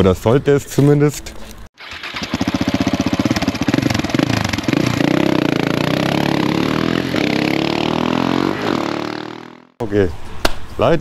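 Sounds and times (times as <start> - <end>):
motorcycle engine accelerating: 1.8 - 9.8.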